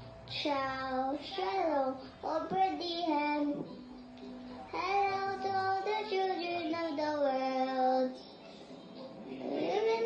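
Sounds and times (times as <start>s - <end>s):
girl singing: 0.3s - 3.8s, 4.7s - 8.3s, 9.3s - 10.0s.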